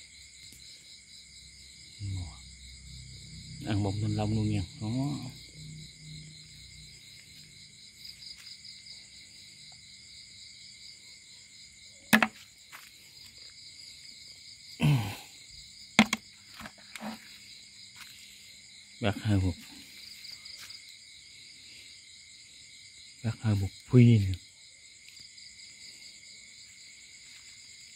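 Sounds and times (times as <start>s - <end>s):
insects trilling: 0.0s - 27.9s
sharp knocks: 12.1s - 12.4s, 16.0s - 17.2s.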